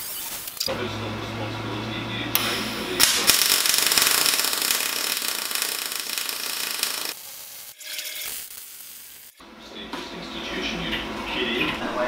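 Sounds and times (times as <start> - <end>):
welding arc crackling: 2.5 - 9.4.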